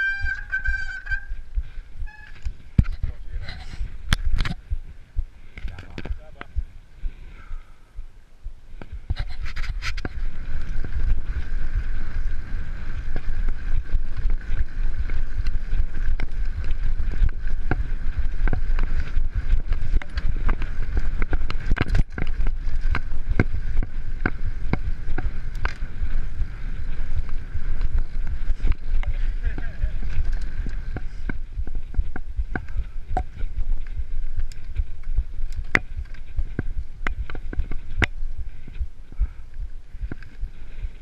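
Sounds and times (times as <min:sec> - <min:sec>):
bike tyres rumbling on gravel: 0:00.0 - 0:07.7, 0:08.8 - 0:41.0
bike knocks and rattles: 0:09.2 - 0:38.2.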